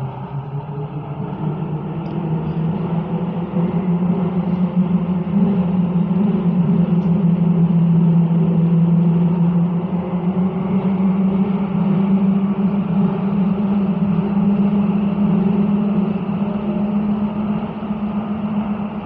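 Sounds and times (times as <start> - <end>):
train rumbling through tunnel: 0.0 - 19.0.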